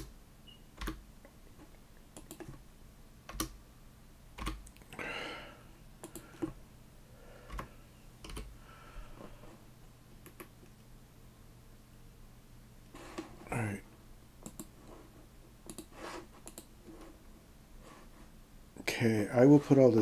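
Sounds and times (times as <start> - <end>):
keyboard keystrokes: 2.2 - 2.6, 3.3 - 3.6, 4.4 - 4.8, 7.5 - 8.5
mouse clicks: 15.7 - 16.7.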